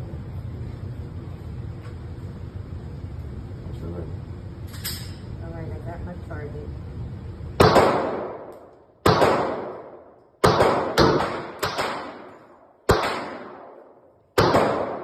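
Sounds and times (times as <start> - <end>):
pistol shots echoing indoors: 7.6 - 15.0.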